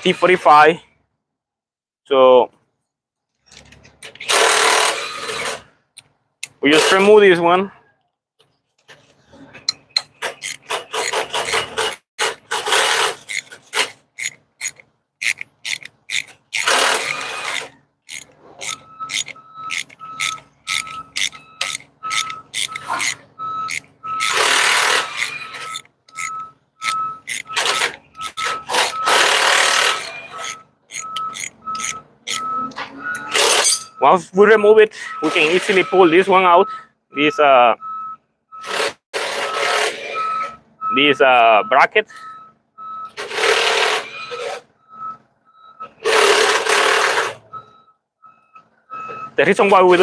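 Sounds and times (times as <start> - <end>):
ratchet wrench clicking: 9.7 - 12.0, 12.7 - 28.4, 29.1 - 32.5
high beeping: 18.1 - 38.7, 39.5 - 43.2.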